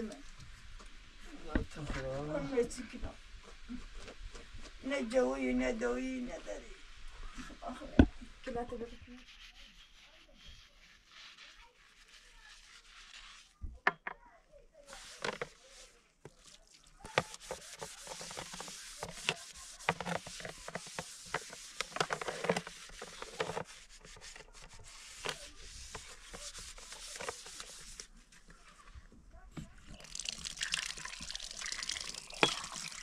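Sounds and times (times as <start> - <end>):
scouring pad scrubbing metal tray: 8.5 - 13.6, 14.8 - 28.7.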